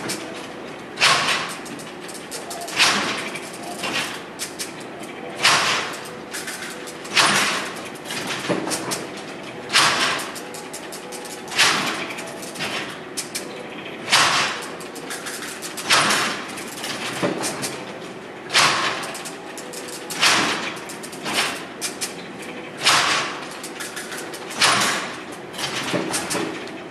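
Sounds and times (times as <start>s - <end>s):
machine gears clattering: 0.0s - 26.9s
light mechanical clicking: 14.1s - 26.8s.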